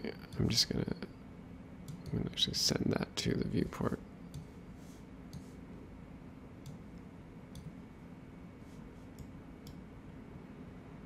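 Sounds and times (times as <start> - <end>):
low room hum: 0.0 - 11.0
computer mouse clicks: 1.8 - 2.2, 5.3 - 5.5, 6.6 - 7.8, 9.1 - 9.9.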